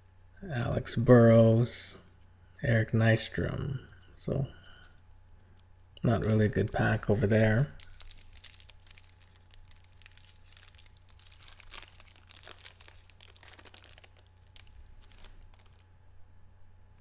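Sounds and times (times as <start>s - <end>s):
foil wrapper tearing and crinkling: 6.1s - 15.8s.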